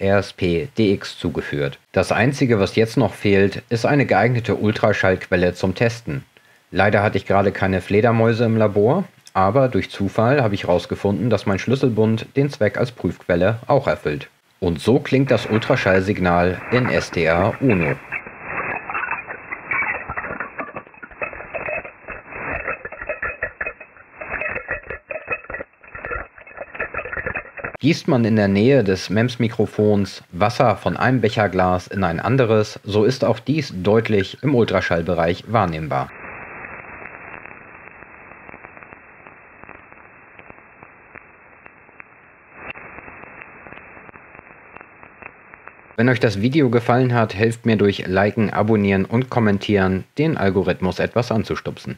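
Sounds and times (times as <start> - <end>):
crackling clicks and rustles: 14.2 - 27.8, 31.0 - 46.3.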